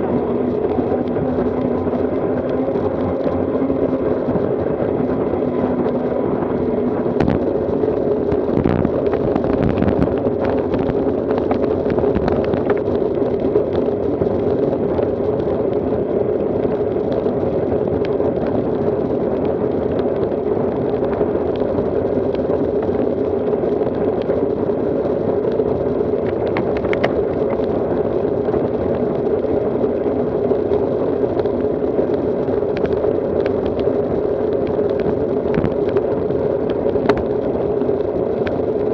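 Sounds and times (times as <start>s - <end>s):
bicycle tyre and road noise: 0.0s - 38.9s
wind buffeting microphone: 0.0s - 38.9s
sharp clicks and knocks: 26.2s - 27.6s.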